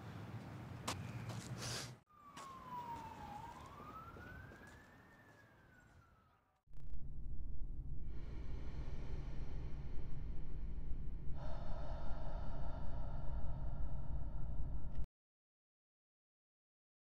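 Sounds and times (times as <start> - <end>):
siren wailing: 2.1 - 6.6
loud steady low rumble: 6.7 - 15.1.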